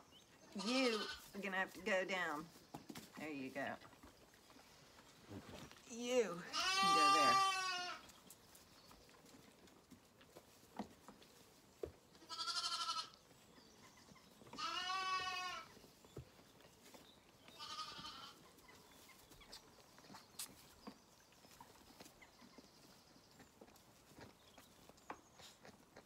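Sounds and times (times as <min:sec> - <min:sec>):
lambs bleating: 0:00.6 - 0:01.3, 0:06.5 - 0:08.0, 0:12.3 - 0:13.2, 0:14.6 - 0:15.7, 0:17.5 - 0:18.4.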